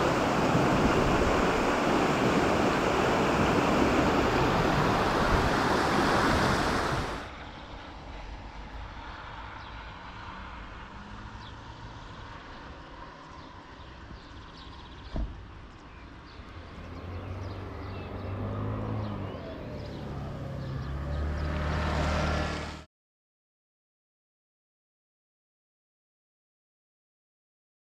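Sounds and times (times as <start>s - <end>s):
wind on microphone: 0.0s - 7.3s
vehicle engine approaching: 16.5s - 22.9s.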